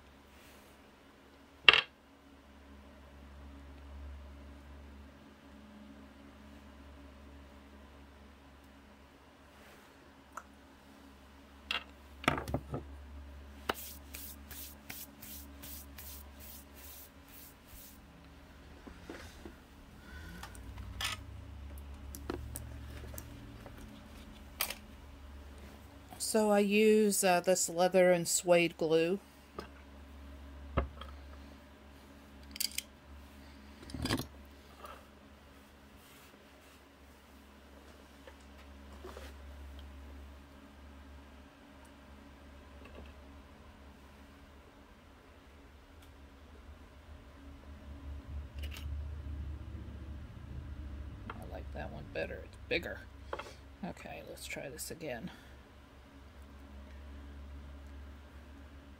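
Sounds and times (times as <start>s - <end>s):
low steady hum: 0.0s - 58.9s
objects knocking on wooden workbench: 12.2s - 12.9s
rubbing or scraping strokes: 13.6s - 18.1s.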